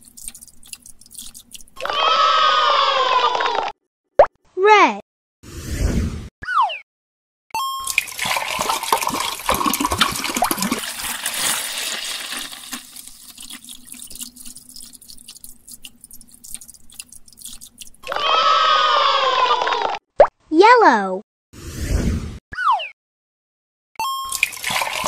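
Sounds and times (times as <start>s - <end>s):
liquid pouring into plastic cup: 0.0s - 1.8s, 7.8s - 18.1s, 24.3s - 25.0s.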